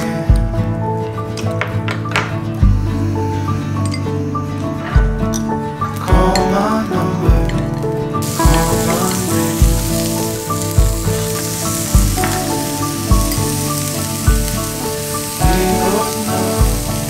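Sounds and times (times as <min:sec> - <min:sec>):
mellow music with slow beat: 0:00.0 - 0:17.0
crackling hiss: 0:08.1 - 0:17.0.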